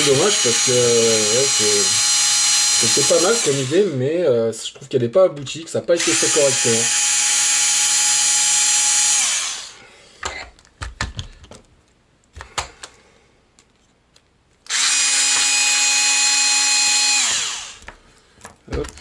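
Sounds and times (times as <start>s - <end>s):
electric screwdriver whine: 0.0s - 3.9s, 6.0s - 9.8s, 14.7s - 17.9s
small parts clicking and knocking: 10.2s - 15.5s, 17.8s - 19.0s.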